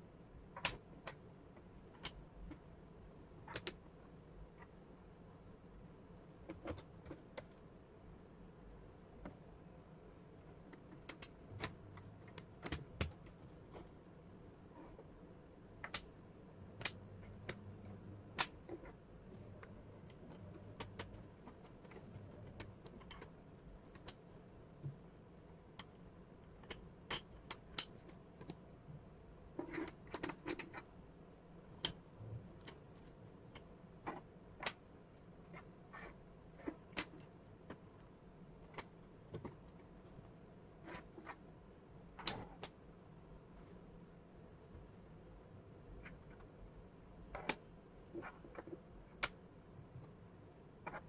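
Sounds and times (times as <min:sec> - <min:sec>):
wooden puzzle pieces clicking: 0:00.5 - 0:02.6, 0:03.4 - 0:03.8, 0:15.8 - 0:24.3, 0:25.7 - 0:28.6, 0:29.6 - 0:30.9, 0:35.5 - 0:37.9, 0:42.2 - 0:42.8.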